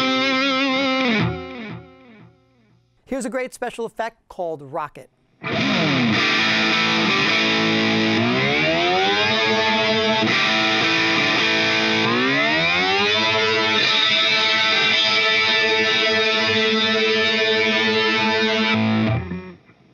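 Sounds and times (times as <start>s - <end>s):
distorted electric guitar chord: 0.0s - 2.4s, 5.4s - 19.6s.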